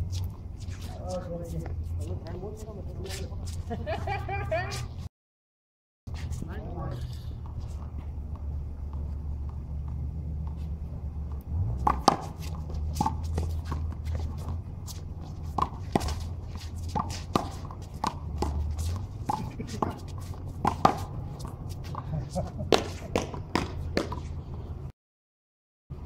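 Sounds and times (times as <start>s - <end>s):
sneakers shuffling on court: 0.0s - 5.1s, 6.1s - 24.7s
steady low hum: 6.1s - 24.9s.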